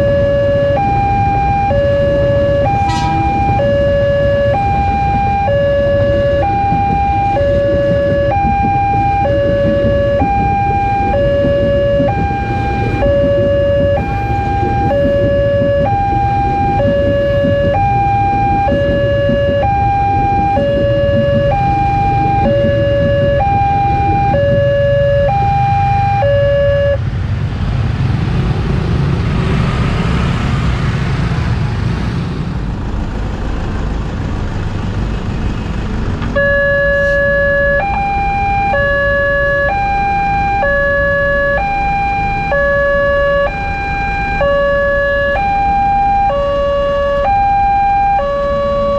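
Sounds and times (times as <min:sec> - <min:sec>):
level-crossing warning bell: 0:00.0 - 0:27.0, 0:36.4 - 0:48.9
electric train rumbling past: 0:02.6 - 0:26.4.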